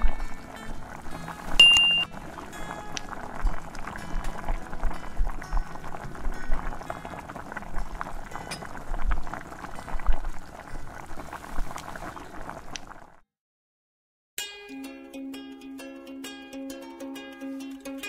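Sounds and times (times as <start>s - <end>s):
stew bubbling in a frying pan: 0.0s - 13.2s.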